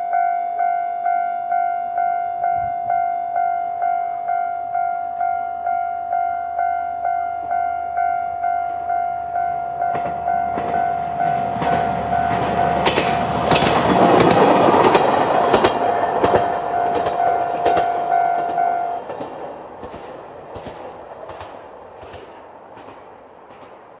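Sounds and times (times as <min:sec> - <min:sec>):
crossing bell electronic dings: 0:00.0 - 0:13.2, 0:15.6 - 0:19.0
train wheels clacking on rail joints: 0:09.8 - 0:24.0.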